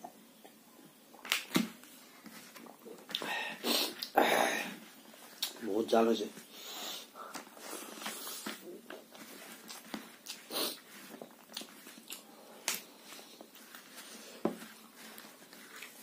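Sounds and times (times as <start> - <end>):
man chewing and lip smacking: 5.3 - 5.6, 7.3 - 13.6
fingers squishing rice: 7.3 - 16.0.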